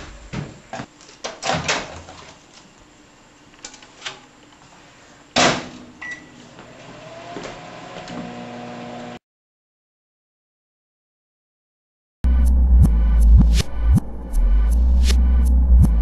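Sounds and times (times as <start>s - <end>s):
microwave oven humming: 5.8s - 9.2s.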